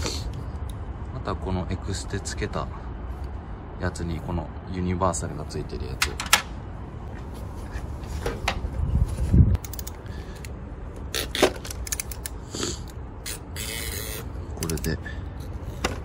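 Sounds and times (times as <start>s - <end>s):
sharp metal clicks: 11.6s - 12.4s.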